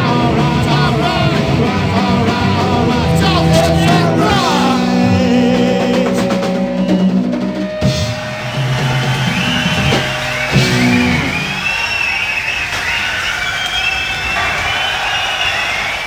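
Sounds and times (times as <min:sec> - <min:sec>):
low guitar chords: 0:00.0 - 0:11.6
drum hits: 0:02.3 - 0:11.6.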